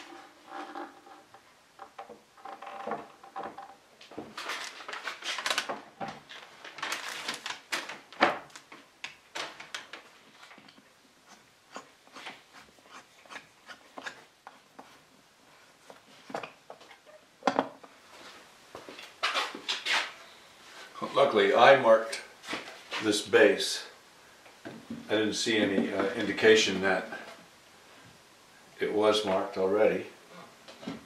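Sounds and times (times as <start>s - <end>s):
wood scraping: 0.0s - 7.4s, 10.3s - 15.1s
paper rustling: 4.3s - 10.7s.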